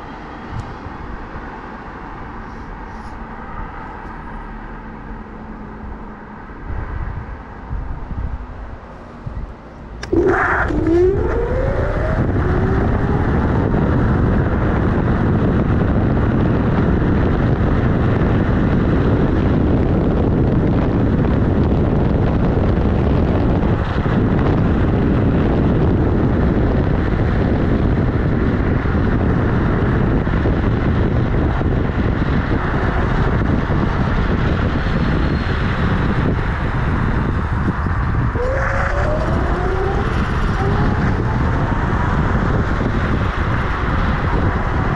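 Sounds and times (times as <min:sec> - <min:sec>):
scooter tyre roar on tarmac: 0:00.0 - 0:44.9
wind on microphone: 0:06.6 - 0:44.9
faint rising whine: 0:10.0 - 0:14.8, 0:38.1 - 0:44.2.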